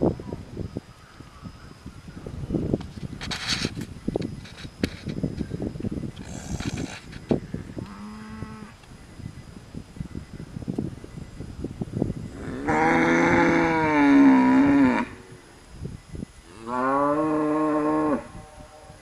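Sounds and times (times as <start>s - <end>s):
cow mooing: 12.4s - 15.2s, 16.6s - 18.9s.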